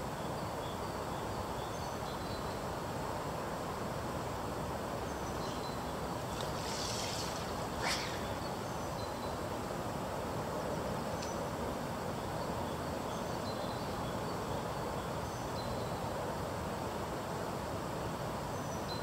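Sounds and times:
fast river rushing: 6.0s - 9.0s
fishing line swishing off water: 6.2s - 9.0s.

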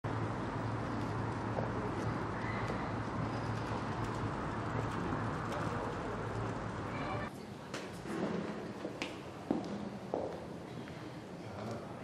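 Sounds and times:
distant traffic: 0.1s - 7.3s
steady low hum: 0.1s - 7.3s.

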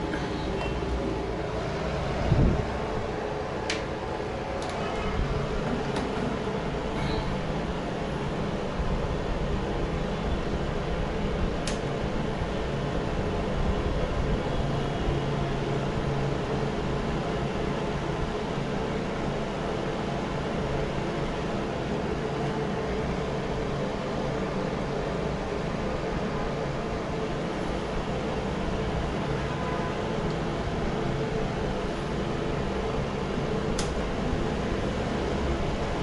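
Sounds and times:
fan heater whirring: 0.0s - 36.0s
sharp click: 33.8s - 34.0s.

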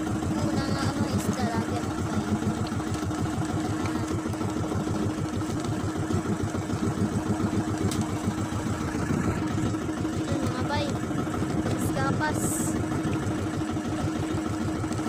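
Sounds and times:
boat engine chugging: 0.0s - 15.0s.

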